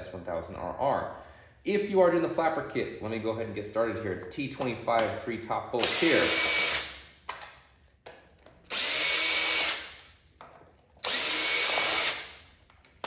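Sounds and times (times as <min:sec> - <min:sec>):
power drill running: 0:05.8 - 0:06.9, 0:08.7 - 0:10.0, 0:11.0 - 0:12.4.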